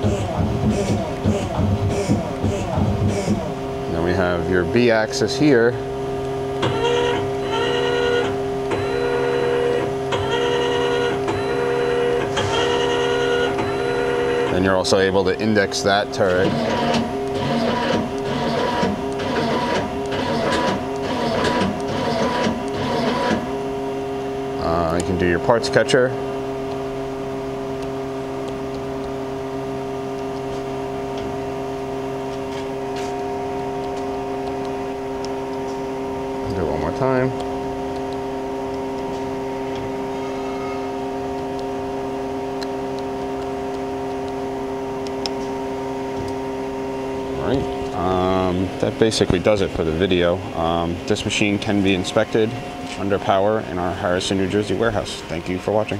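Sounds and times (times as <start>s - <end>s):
indexing drive whirring: 0.0s - 55.9s
machine humming: 0.0s - 55.9s.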